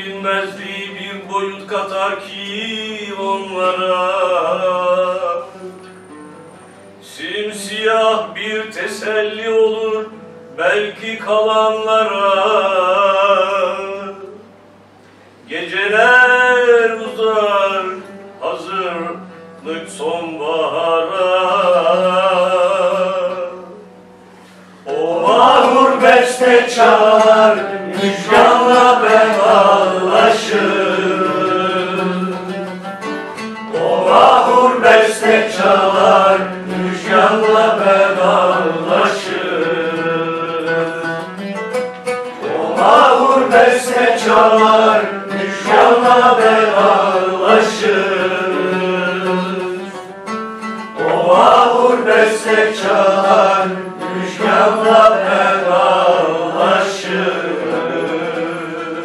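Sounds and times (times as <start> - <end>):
plucked string instrument: 17.9 - 59.0.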